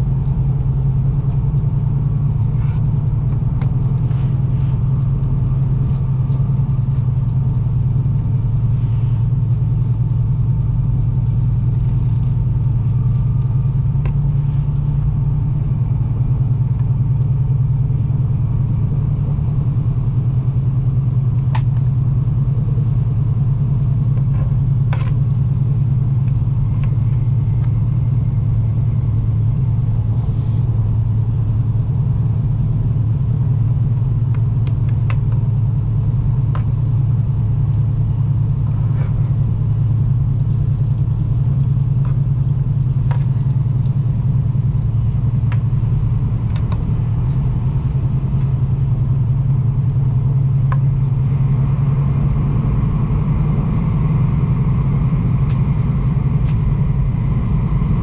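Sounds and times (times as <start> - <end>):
train cabin rumble: 0.0 - 58.0.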